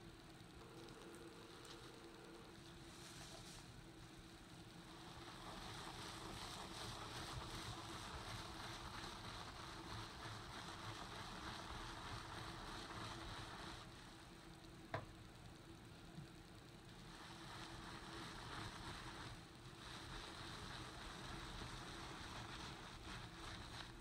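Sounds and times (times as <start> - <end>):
gloved hand scrubbing carpet: 5.0 - 13.9, 17.1 - 24.0.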